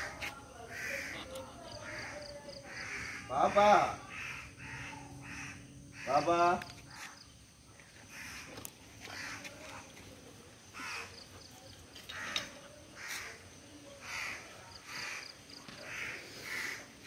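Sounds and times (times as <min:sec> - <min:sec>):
bird calling: 0:00.0 - 0:09.9.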